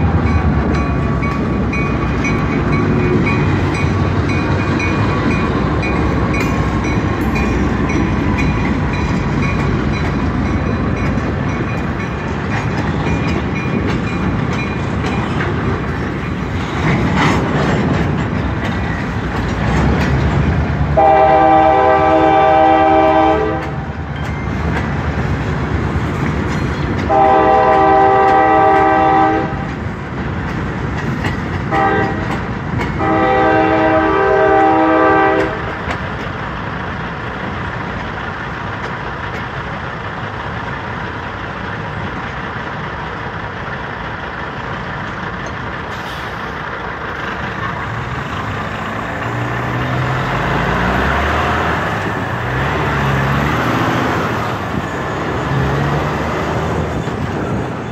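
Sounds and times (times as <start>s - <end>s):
freight train rumbling: 0.0s - 57.9s
train wheels clattering: 0.0s - 57.9s
train air horn: 21.0s - 23.9s, 27.1s - 29.6s, 31.7s - 32.4s, 33.0s - 35.8s.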